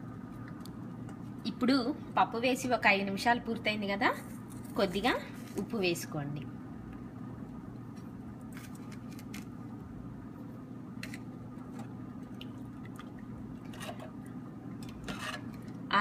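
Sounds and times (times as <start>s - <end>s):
steady low hum: 0.0s - 16.0s
liquid squishing in pot: 11.6s - 15.9s.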